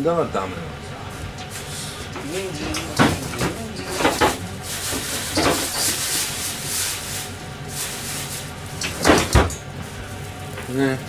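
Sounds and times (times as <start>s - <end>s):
rubbing and scraping: 1.5s - 9.1s.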